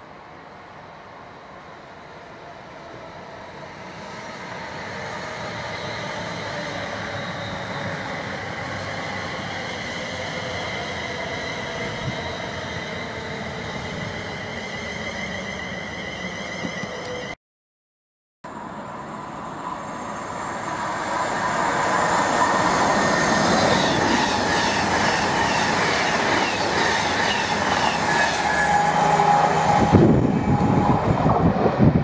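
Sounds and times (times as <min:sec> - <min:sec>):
train wheels rumbling on rails: 0:02.9 - 0:17.4, 0:19.4 - 0:32.0
train motor whining: 0:16.4 - 0:17.4, 0:21.2 - 0:31.7.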